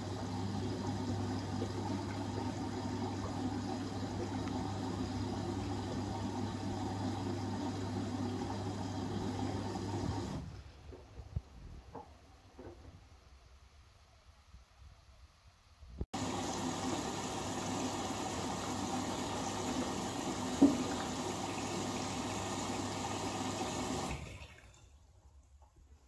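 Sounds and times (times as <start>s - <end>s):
wet laundry sloshing in water: 0.0s - 10.3s.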